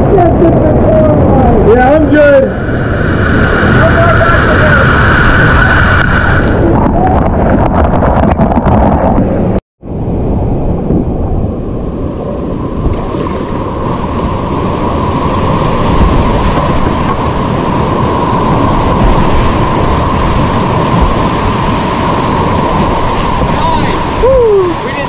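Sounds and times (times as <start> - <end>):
whitewater rapids rushing: 12.8 - 25.0.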